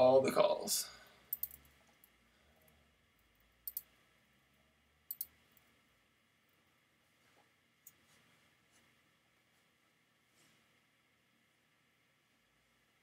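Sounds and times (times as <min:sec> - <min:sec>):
computer mouse clicking: 0:01.3 - 0:01.7, 0:03.6 - 0:03.9, 0:05.1 - 0:05.4.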